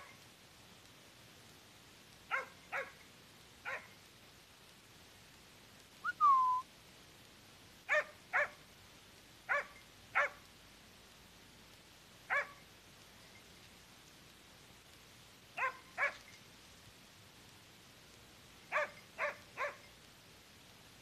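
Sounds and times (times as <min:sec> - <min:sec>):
dog barking: 0:02.3 - 0:03.0, 0:03.6 - 0:03.9, 0:07.9 - 0:08.6, 0:09.5 - 0:10.4, 0:12.3 - 0:12.6, 0:15.6 - 0:16.2, 0:18.7 - 0:19.9.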